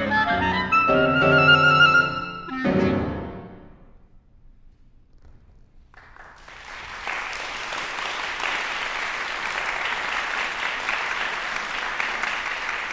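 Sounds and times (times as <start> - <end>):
audience applauding: 5.9 - 12.9.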